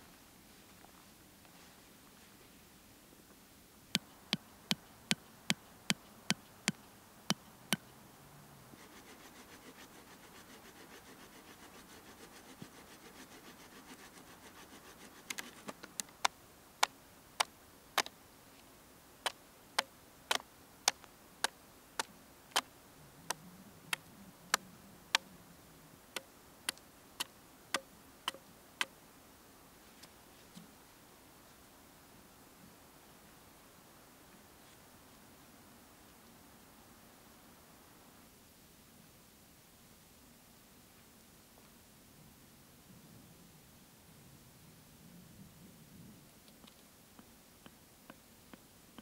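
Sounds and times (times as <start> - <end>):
faint rasping: 8.7 - 16.0.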